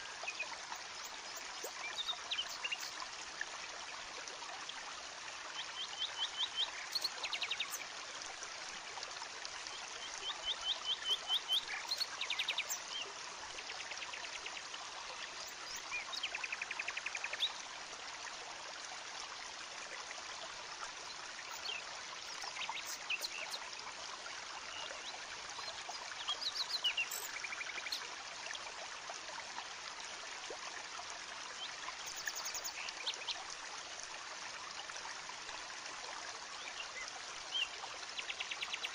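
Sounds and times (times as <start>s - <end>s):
bird chirping: 21.5s - 23.6s, 25.6s - 28.0s, 32.0s - 32.9s.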